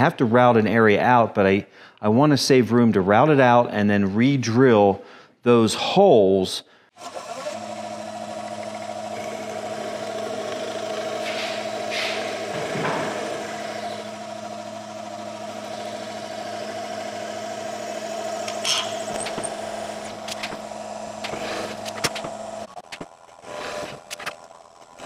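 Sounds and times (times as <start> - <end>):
drill bit cutting wood: 7.0 - 25.0
drill press motor humming: 7.0 - 25.0.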